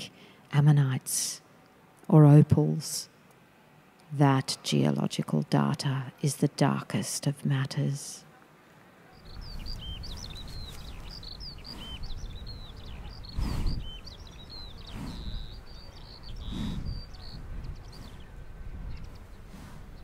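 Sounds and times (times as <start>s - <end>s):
small birds chirping: 9.1s - 20.0s
low rumbling noise: 9.2s - 20.0s.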